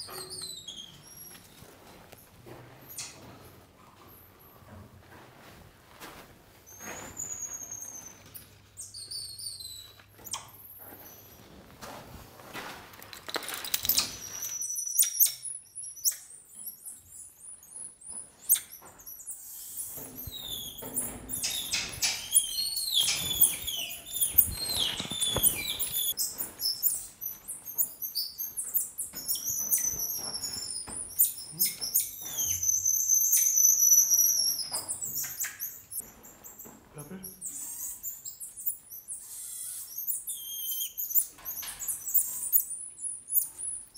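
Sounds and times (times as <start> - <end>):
monkeys chirping: 18.4 - 43.9
monkey whistles: 31.2 - 35.8, 37.4 - 42.7.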